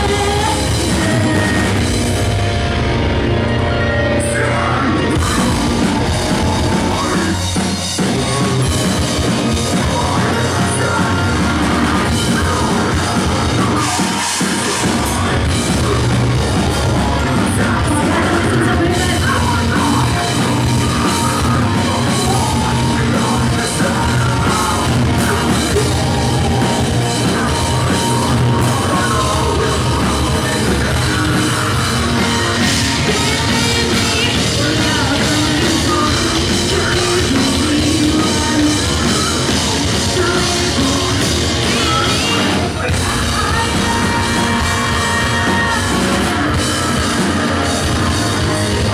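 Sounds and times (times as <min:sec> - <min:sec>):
post-hardcore band playing: 0:00.0 - 0:48.9
screamed vocals: 0:03.8 - 0:08.5, 0:09.9 - 0:35.6.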